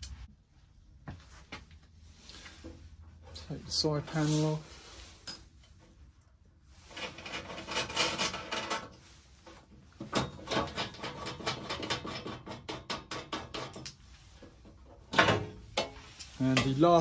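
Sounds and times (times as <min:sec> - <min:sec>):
metal panel scraping and rattling: 0:06.8 - 0:17.0.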